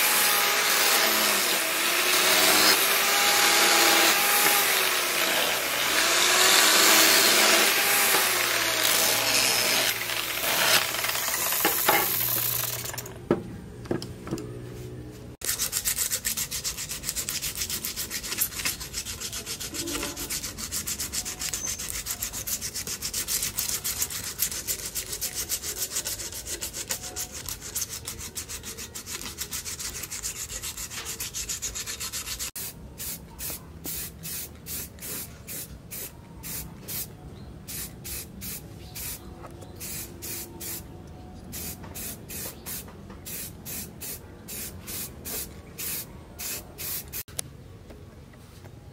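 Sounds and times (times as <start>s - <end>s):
angle grinder grinding steel: 0.0s - 13.1s
aerosol spray can bursts: 32.6s - 37.1s, 39.8s - 40.8s, 41.6s - 47.2s.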